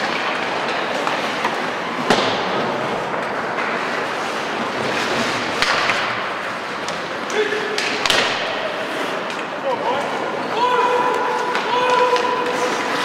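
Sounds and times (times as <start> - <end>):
skates on ice: 0.0 - 13.0
sticks knocking puck: 5.4 - 8.6, 11.0 - 13.0.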